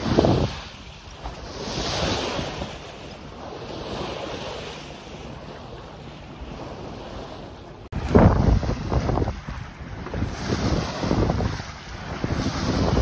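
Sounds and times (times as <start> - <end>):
wind gusting on microphone: 0.0 - 5.6, 6.4 - 13.0
water washing along boat hull: 0.0 - 13.0.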